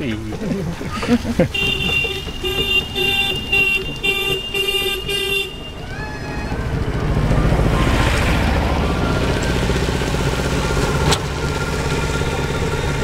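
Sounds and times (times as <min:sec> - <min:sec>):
vehicle engine rumble approaching: 0:00.0 - 0:13.0
vehicle horn beeping: 0:01.5 - 0:05.9.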